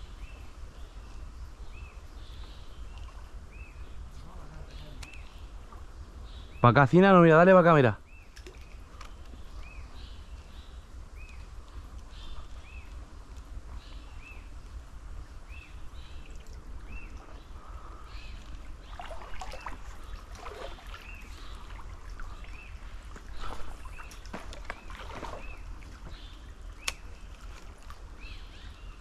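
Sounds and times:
canal water rushing: 18.6 - 27.3.

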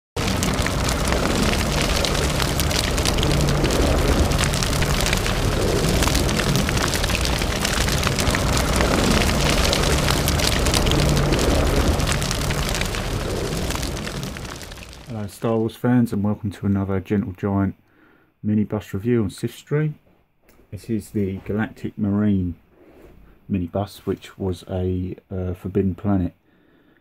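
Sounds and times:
low rumble: 0.0 - 15.5
dense crackling: 0.0 - 16.4.

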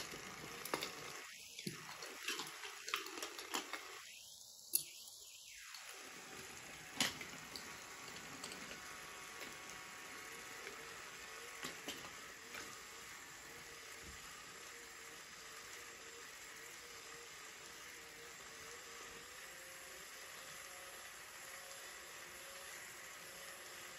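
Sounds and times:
toy train cars clicking together: 0.0 - 4.1, 6.8 - 12.9
toy train motors whirring: 0.0 - 23.9.

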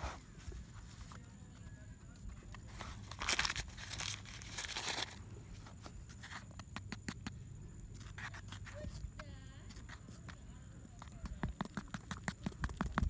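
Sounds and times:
rustling crinkling handling noise: 2.5 - 6.4.

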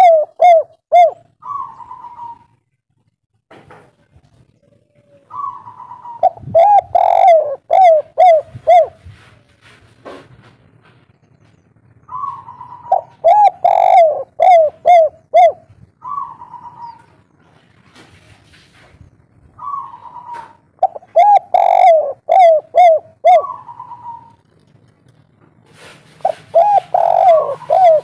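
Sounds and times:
dove cooing: 0.0 - 2.6, 4.6 - 9.3, 12.1 - 17.2, 19.6 - 24.5, 26.1 - 28.0.

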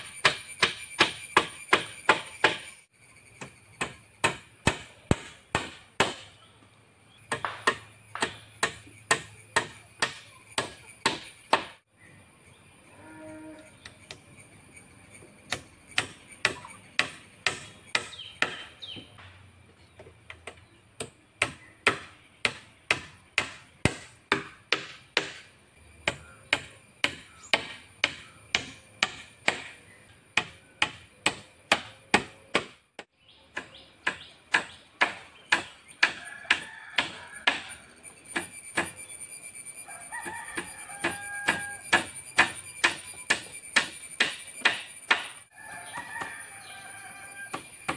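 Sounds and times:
rooster crowing: 36.0 - 38.0, 39.7 - 42.2, 45.5 - 47.9.

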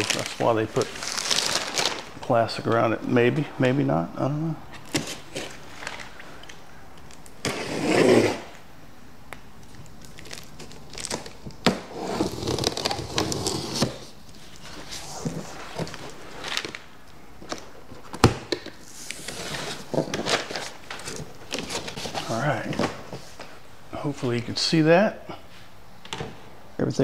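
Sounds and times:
knife cutting packing tape: 7.4 - 8.5, 11.1 - 14.0.

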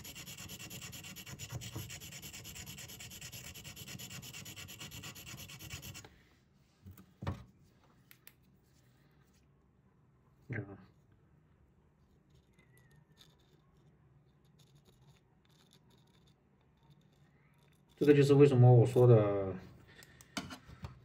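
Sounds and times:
rapid hand sanding on stone: 0.0 - 6.0.

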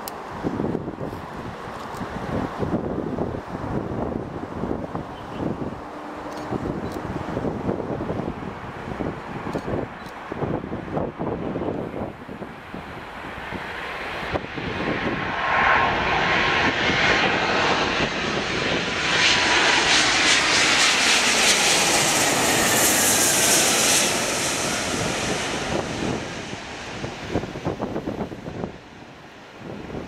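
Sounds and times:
jet engines roaring overhead: 0.0 - 30.0
jet engine whine dropping in pitch: 13.4 - 30.0.

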